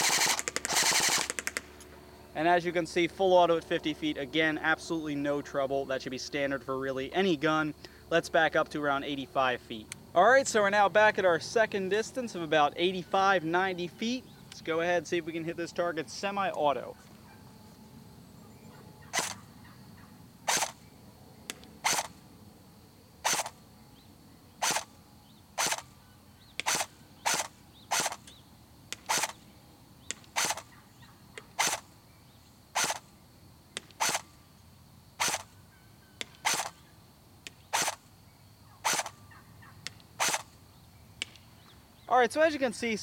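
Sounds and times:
airsoft gun single shots: 0:00.0 - 0:01.8, 0:19.1 - 0:19.4, 0:20.4 - 0:20.8, 0:21.5 - 0:22.2, 0:23.2 - 0:23.6, 0:24.6 - 0:24.9, 0:25.6 - 0:25.9, 0:26.6 - 0:28.3, 0:28.9 - 0:29.4, 0:30.0 - 0:30.8, 0:31.6 - 0:31.8, 0:32.8 - 0:33.0, 0:33.8 - 0:34.3, 0:35.2 - 0:35.5, 0:36.2 - 0:36.8, 0:37.4 - 0:38.0, 0:38.8 - 0:39.2, 0:39.8 - 0:40.5.

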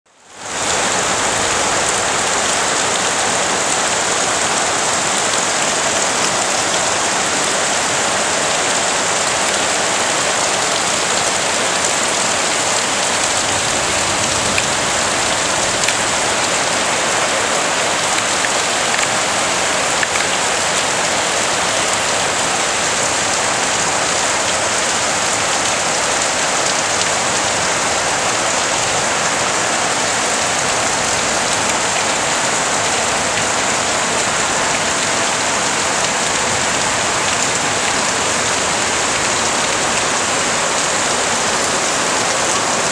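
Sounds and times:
heavy rain on wet ground: 0:00.1 - 0:42.9.

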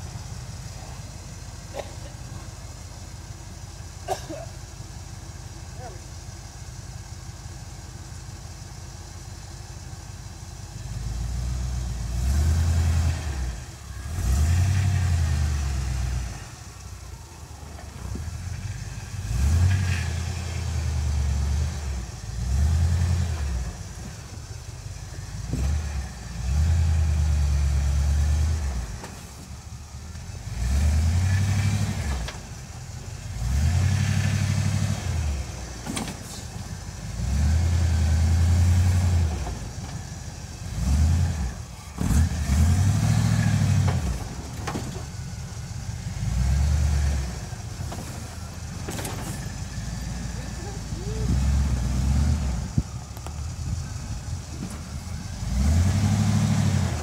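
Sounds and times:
engine idling and revving: 0:00.0 - 0:57.0.

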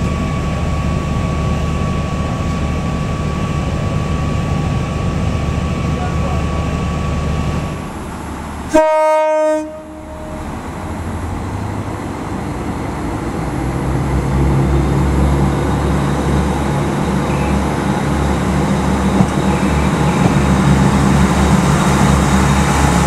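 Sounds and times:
train engine rumble: 0:00.0 - 0:23.0
train horn blast: 0:08.7 - 0:10.5, 0:19.5 - 0:20.4.

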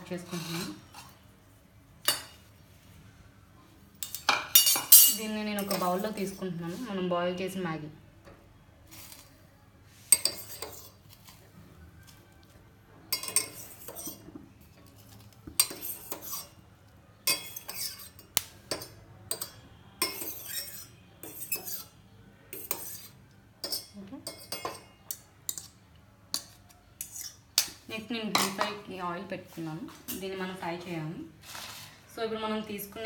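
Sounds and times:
spoon clinking and scraping pot: 0:04.0 - 0:06.4, 0:10.1 - 0:11.4, 0:13.1 - 0:16.6, 0:17.2 - 0:27.8.

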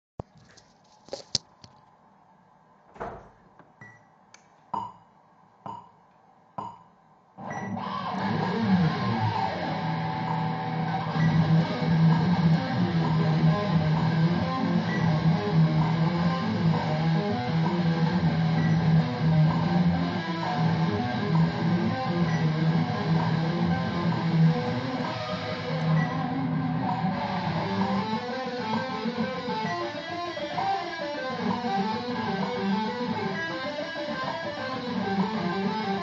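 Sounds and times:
guitar playing: 0:07.8 - 0:36.0.

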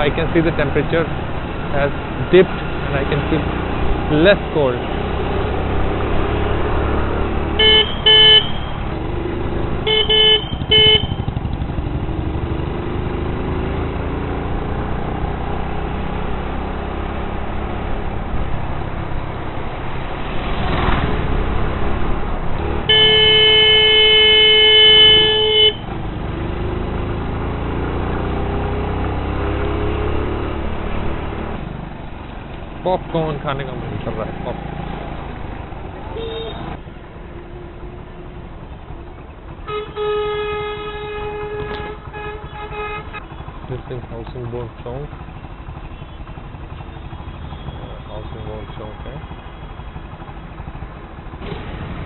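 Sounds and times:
traffic engine and road rumble: 0:00.0 - 0:52.0
long horn blast: 0:07.6 - 0:08.7, 0:09.8 - 0:11.3, 0:22.9 - 0:25.9, 0:36.1 - 0:36.8, 0:39.6 - 0:43.4
car horn toots: 0:07.6 - 0:08.8, 0:09.8 - 0:11.4, 0:22.9 - 0:25.9, 0:36.1 - 0:36.8, 0:39.6 - 0:43.5.

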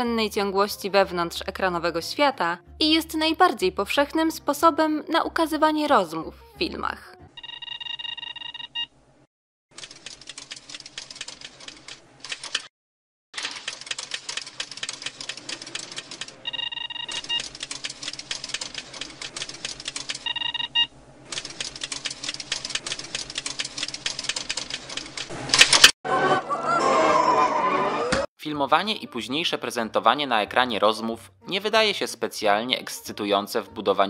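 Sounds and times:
film projector clatter: 0:13.4 - 0:16.4, 0:17.3 - 0:20.3, 0:21.3 - 0:25.9.

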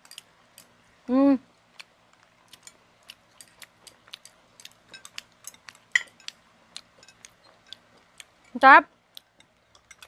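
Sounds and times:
chopsticks clicking on ceramic plates: 0:02.5 - 0:08.6, 0:09.2 - 0:10.0.

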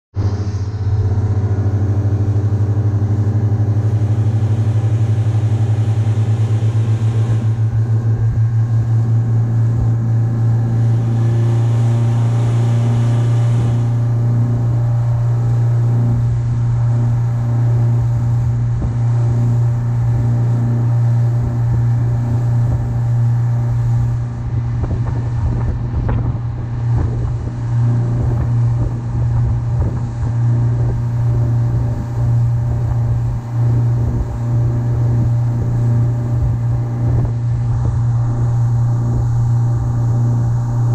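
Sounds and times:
outboard motors droning: 0:00.1 - 0:40.9
wind: 0:00.1 - 0:40.9
wake rushing: 0:00.2 - 0:40.9
low thumps: 0:21.4 - 0:40.9.

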